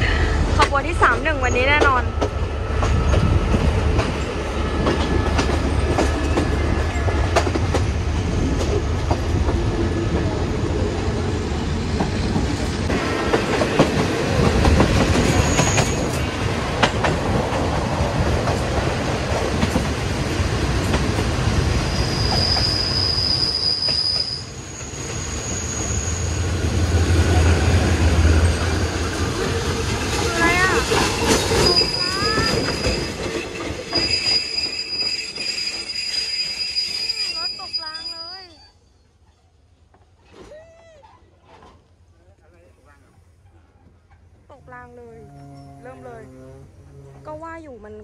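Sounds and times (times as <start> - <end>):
train rumbling on rails: 0.0 - 38.5, 41.4 - 48.0
wheels clacking over rail joints: 11.9 - 21.6, 28.4 - 35.8
high-pitched wheel squeals: 21.8 - 26.5, 31.2 - 39.4, 45.2 - 47.3.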